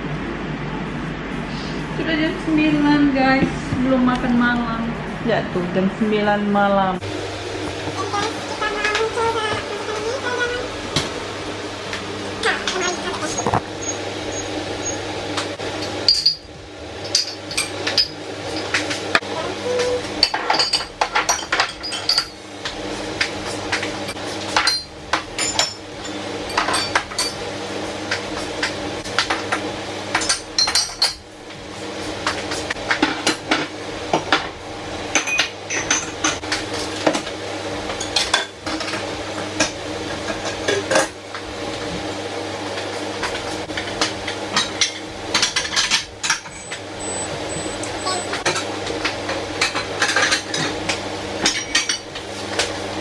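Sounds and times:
steady low hum: 0.0 - 29.5, 43.0 - 53.0
crockery clinking and clattering: 20.2 - 22.4.

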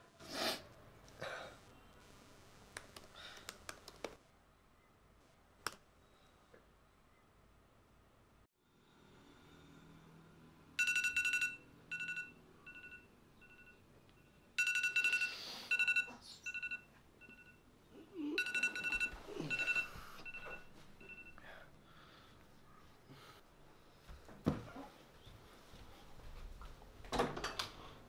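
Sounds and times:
phone alarm beeping: 10.8 - 17.6, 18.4 - 21.4.

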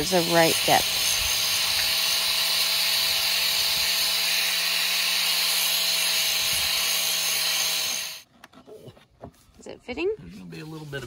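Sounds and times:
angle grinder grinding plastic: 0.0 - 8.3.

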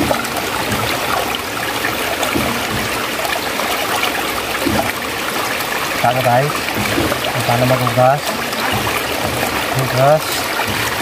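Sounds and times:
stream water running: 0.0 - 11.0
water splashing against bamboo: 0.0 - 11.0.

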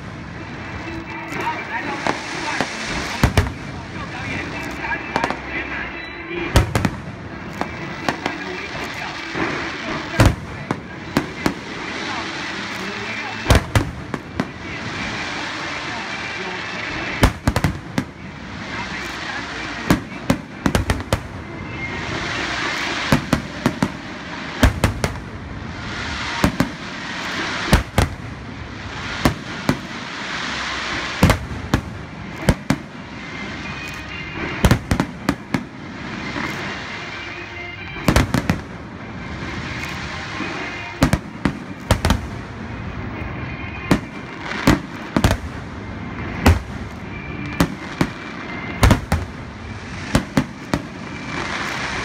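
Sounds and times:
firework stars crackling and fizzing: 0.0 - 52.0
firework shells bursting: 17.1 - 36.8.

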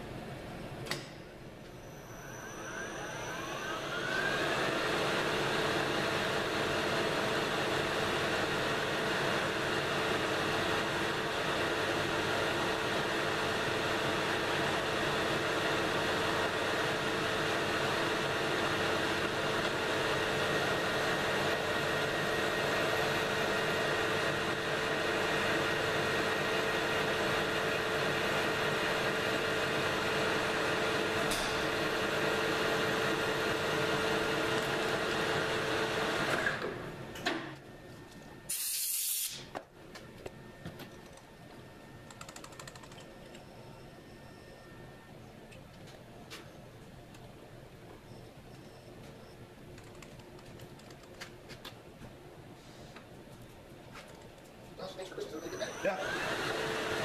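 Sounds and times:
metal lathe whining: 1.9 - 7.5, 55.2 - 57.0
short loud hiss: 38.5 - 39.5.

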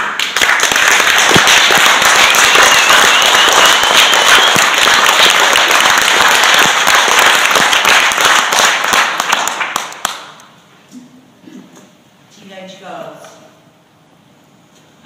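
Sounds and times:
audience applauding: 0.0 - 10.4.

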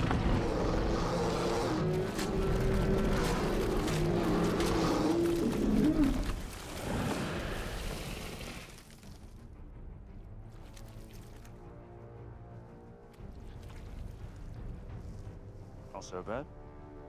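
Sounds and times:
monster roaring: 0.0 - 8.7.

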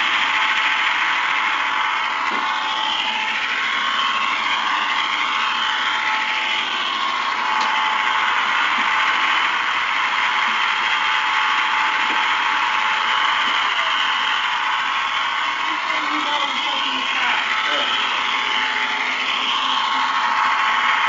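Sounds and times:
model train motor whirring: 0.0 - 21.0.

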